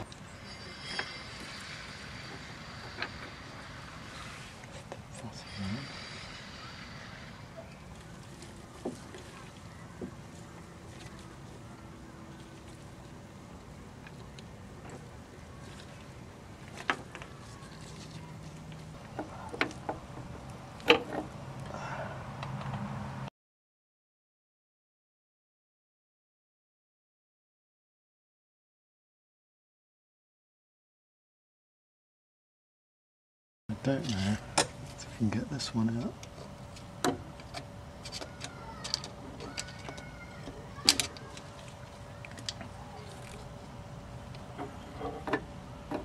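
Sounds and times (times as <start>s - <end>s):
low steady hum: 0.0s - 23.3s, 33.7s - 46.0s.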